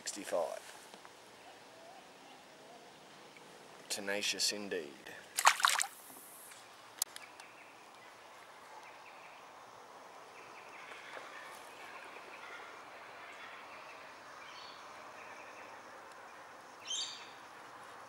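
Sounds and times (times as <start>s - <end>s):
insects: 0.1s - 18.0s
fish splashing into water: 5.4s - 6.0s
birds: 6.5s - 18.0s.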